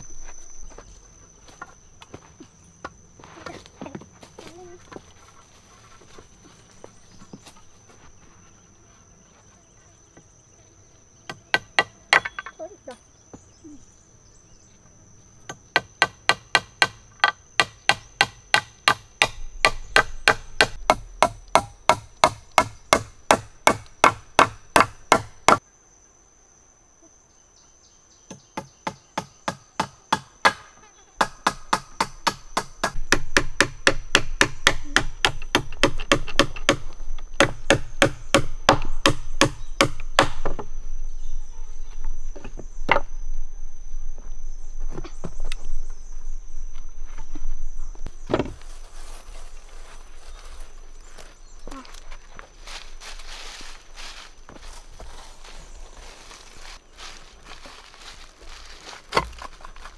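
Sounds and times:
hammer striking wood: 0:15.7 - 0:25.6, 0:31.2 - 0:40.6.

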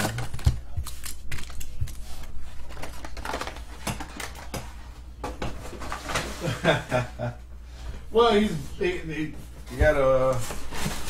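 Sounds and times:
card packs clicking and tapping: 0:00.0 - 0:01.9, 0:02.6 - 0:04.7
steady low hum: 0:00.0 - 0:11.0.

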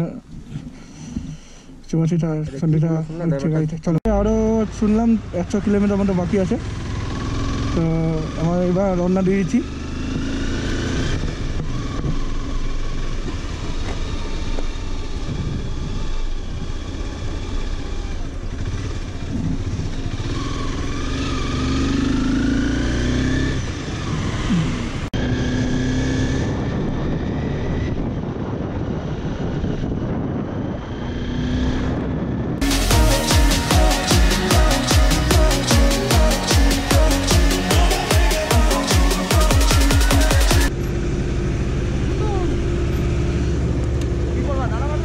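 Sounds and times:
motorcycle engine running: 0:04.1 - 0:28.9, 0:32.6 - 0:45.0
wind rush: 0:26.4 - 0:32.6.

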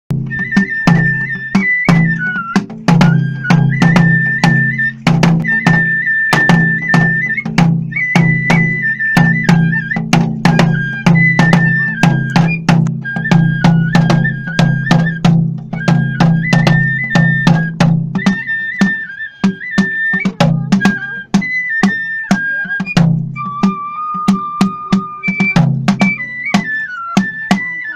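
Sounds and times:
steady drum strikes: 0:00.1 - 0:18.4, 0:20.3 - 0:21.5, 0:25.2 - 0:26.7
high bamboo flute melody: 0:00.1 - 0:27.9.

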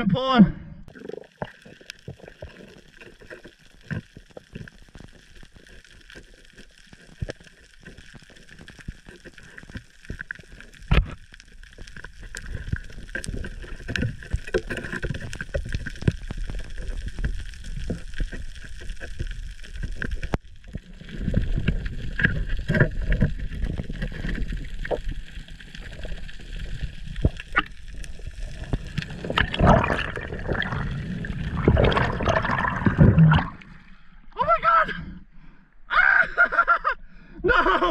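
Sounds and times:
low water rumble: 0:00.0 - 0:35.4
water rushing: 0:20.7 - 0:34.0.

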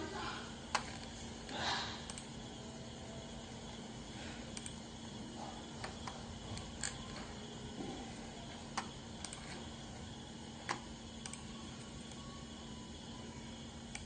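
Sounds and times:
faint hum: 0:00.0 - 0:14.0
computer mouse clicks: 0:02.1 - 0:02.3, 0:04.5 - 0:04.8, 0:08.8 - 0:09.6, 0:10.6 - 0:11.5.

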